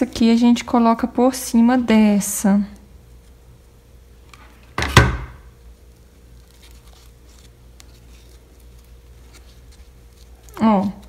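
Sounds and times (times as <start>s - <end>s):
ribbon rustling: 5.5s - 11.0s.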